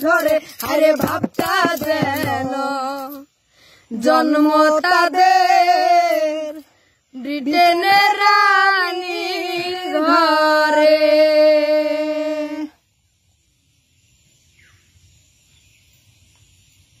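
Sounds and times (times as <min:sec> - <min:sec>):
woman and boy singing: 0:00.0 - 0:12.8
faint hiss: 0:00.0 - 0:17.0.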